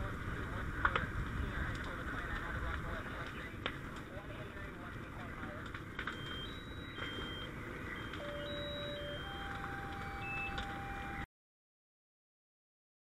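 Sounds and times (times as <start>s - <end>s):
steady rumble: 0.0s - 11.2s
electronic two-tone beeping: 6.1s - 11.3s
steady electronic tone: 6.2s - 11.3s.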